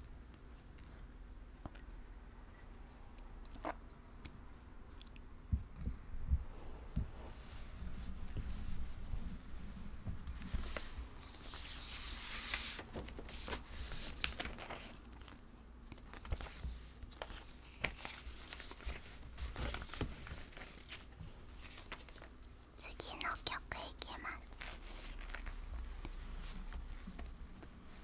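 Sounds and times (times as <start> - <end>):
paper rustling: 10.3 - 22.5, 24.6 - 28.0
soft crinkles and clicks: 12.5 - 22.5, 24.4 - 27.9.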